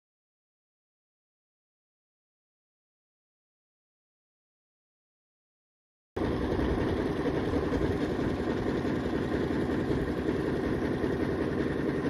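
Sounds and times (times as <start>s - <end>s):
boat engine running: 6.2s - 12.0s.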